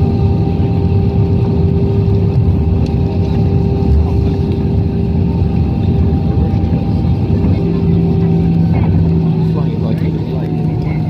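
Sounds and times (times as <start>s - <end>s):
jet engine rumble in cabin: 0.0s - 11.0s.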